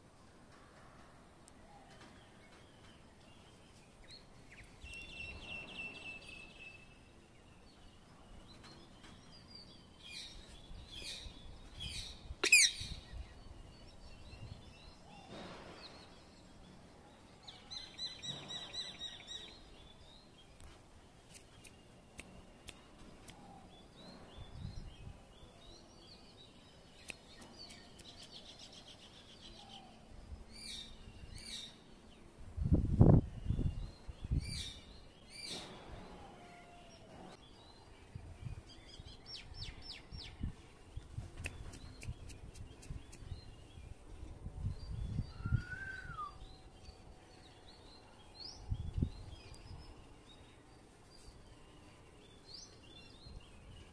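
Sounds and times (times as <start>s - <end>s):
faint outdoor background noise: 0.0s - 53.9s
parakeet chirping calls: 12.4s - 13.0s.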